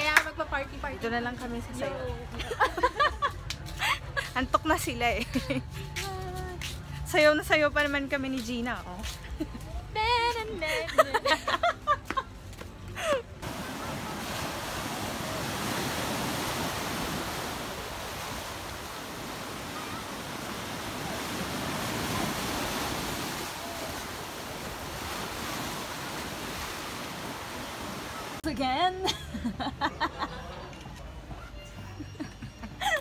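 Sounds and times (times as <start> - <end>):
ocean waves breaking: 13.4 - 28.4.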